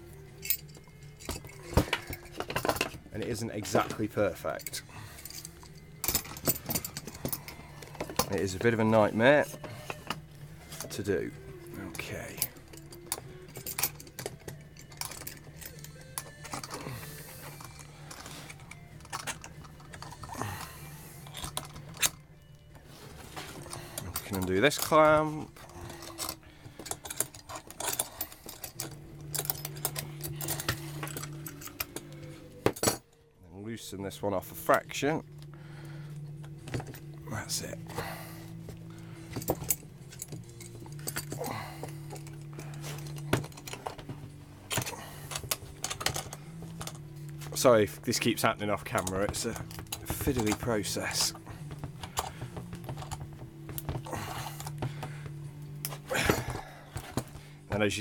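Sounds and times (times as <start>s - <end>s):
metal clamp clicking and clattering: 0.4s - 8.9s, 11.9s - 20.6s, 21.2s - 22.2s, 23.4s - 33.2s, 39.3s - 47.0s, 48.8s - 54.8s.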